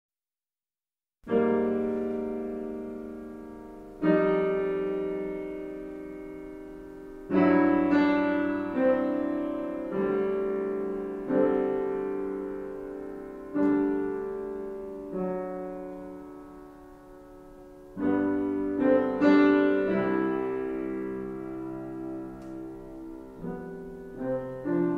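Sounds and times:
slow piano chords: 0:01.2 - 0:24.9.

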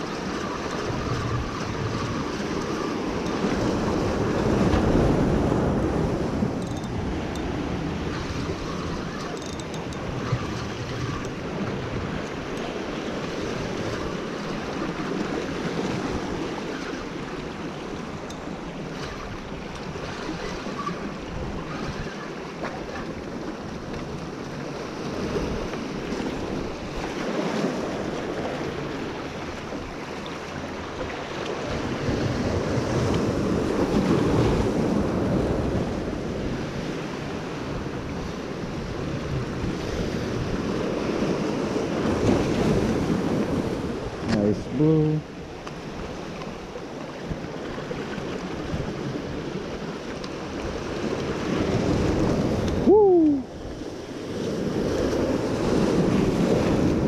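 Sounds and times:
wind buffeting microphone: 0:00.0 - 0:44.8.

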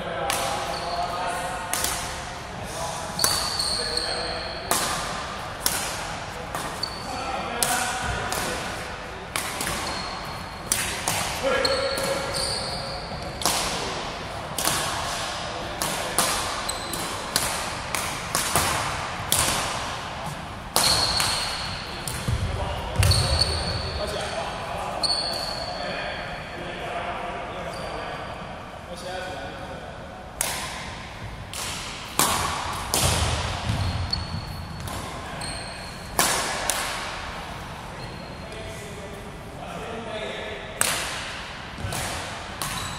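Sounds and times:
racket striking shuttlecock: 0:03.2 - 0:03.6, 0:04.6 - 0:06.9, 0:07.6 - 0:12.5, 0:13.2 - 0:22.3, 0:30.4 - 0:35.3, 0:36.0 - 0:37.3, 0:40.8 - 0:42.9.

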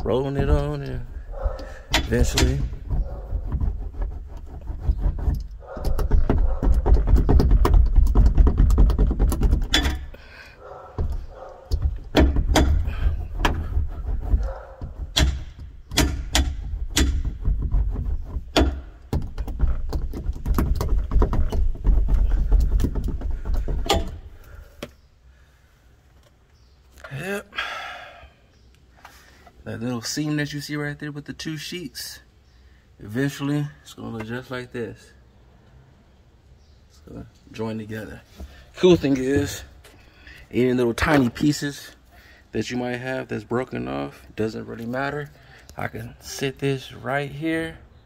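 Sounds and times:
hand roller rumbling on metal roof: 0:00.0 - 0:10.2, 0:11.0 - 0:24.6
sharp clicks and knocks: 0:00.0 - 0:10.2, 0:11.0 - 0:25.0.

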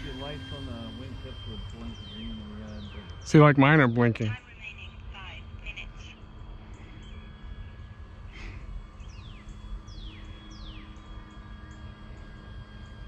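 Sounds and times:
faint steady hum: 0:00.0 - 0:13.0
low rumble: 0:00.0 - 0:13.0
bird whistling downward: 0:00.1 - 0:03.3, 0:09.0 - 0:11.9
bird chirp: 0:00.1 - 0:03.5, 0:08.9 - 0:13.0.

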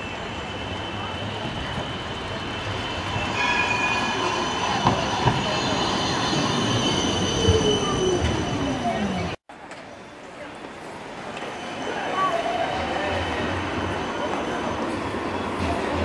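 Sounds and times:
wheels squealing: 0:00.0 - 0:09.4
tram running on rails: 0:00.0 - 0:16.0.

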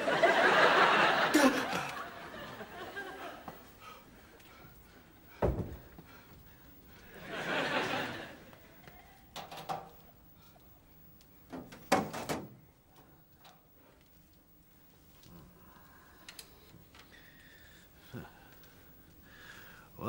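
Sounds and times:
door banging shut: 0:05.4 - 0:05.9.

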